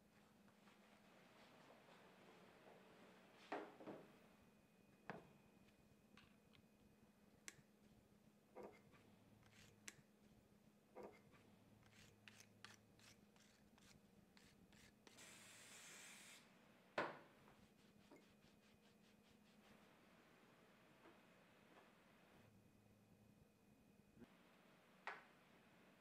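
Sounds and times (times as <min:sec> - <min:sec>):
short hiss: 0:15.2 - 0:16.4.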